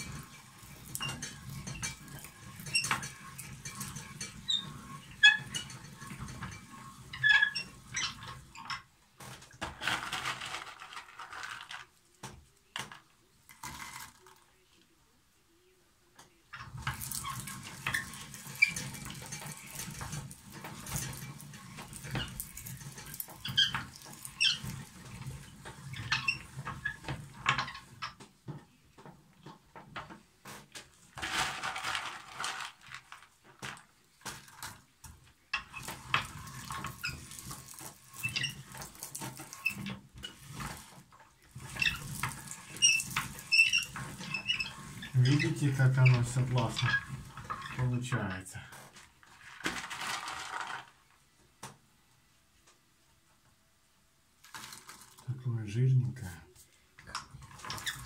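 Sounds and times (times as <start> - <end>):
hand-cranked meat grinder grinding: 0.0 - 11.9, 16.6 - 30.1, 31.0 - 51.0, 57.0 - 58.0
walnut kernels rustling: 9.2 - 14.6, 16.7 - 28.1, 31.0 - 34.9, 35.6 - 51.2, 54.4 - 56.4.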